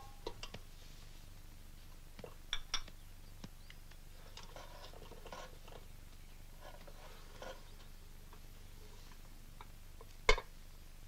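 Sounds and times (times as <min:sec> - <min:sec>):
steady low hiss: 0:00.0 - 0:11.0.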